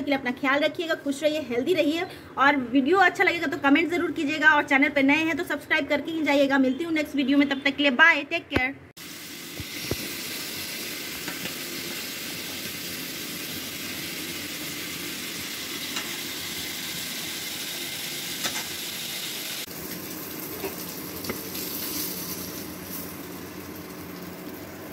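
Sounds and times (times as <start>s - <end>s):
oil crackling and popping: 9.0s - 24.8s
fish sizzling in oil: 9.0s - 24.9s.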